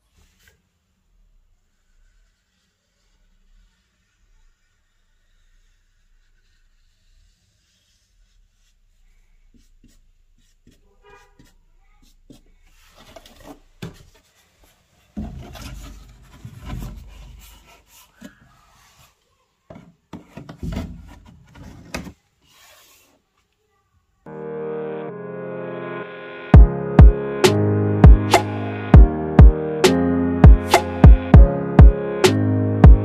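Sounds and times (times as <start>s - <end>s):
marker squeaking on wood: 9.5s - 12.5s
plank scraping over floor: 11.4s - 23.2s.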